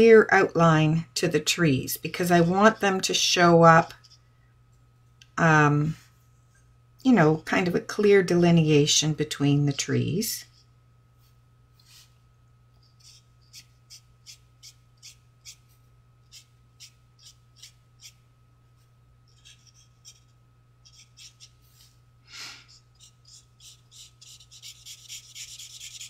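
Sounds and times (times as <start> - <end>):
faint electrical hum: 0.0 - 26.0
person breathing: 22.2 - 22.8.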